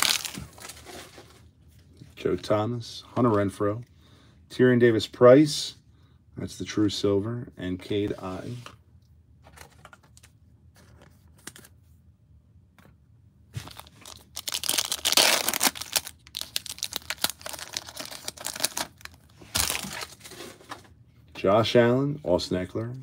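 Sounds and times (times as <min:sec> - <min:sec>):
foil wrapper crinkling and tearing: 0:00.0 - 0:01.3, 0:13.6 - 0:20.4.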